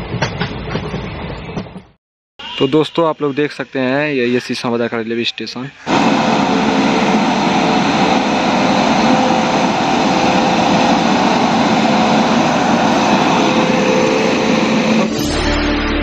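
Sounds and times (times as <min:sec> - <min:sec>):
train running gear on rails: 0:00.0 - 0:01.9, 0:05.8 - 0:15.1
locomotive hum: 0:05.8 - 0:15.2.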